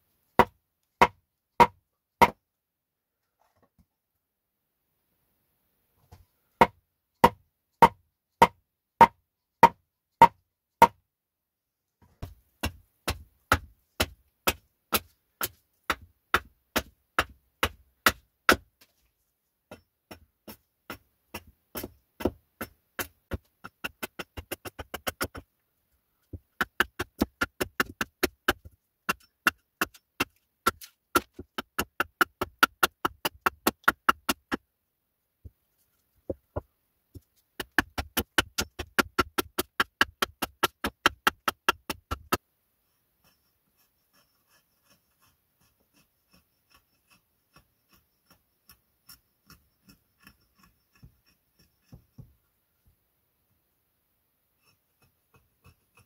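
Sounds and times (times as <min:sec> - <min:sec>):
hatchet chopping wood: 0:00.4 - 0:02.4, 0:06.6 - 0:11.0, 0:12.2 - 0:18.8, 0:19.7 - 0:25.5, 0:26.3 - 0:34.6, 0:37.6 - 0:42.4.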